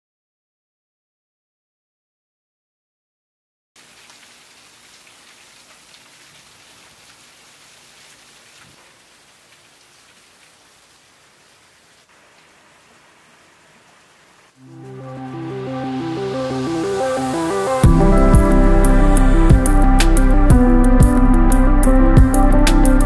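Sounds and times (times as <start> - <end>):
rain falling on puddles: 3.8 - 15.0.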